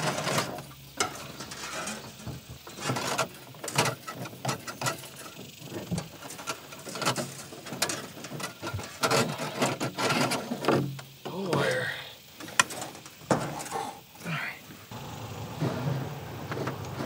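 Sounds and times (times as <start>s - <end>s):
wire scraping through tube: 0.0s - 10.9s.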